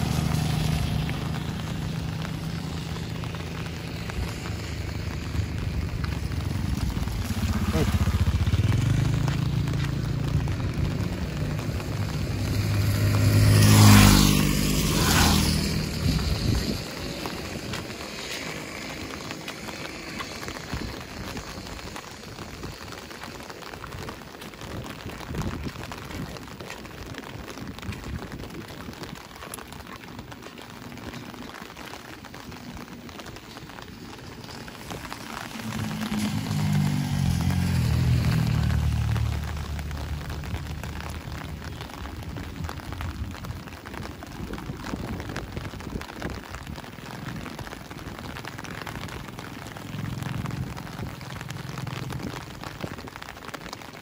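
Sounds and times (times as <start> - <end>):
vehicle passing by: 0.0 - 24.0, 29.9 - 43.9
steady rain falling: 0.0 - 54.0.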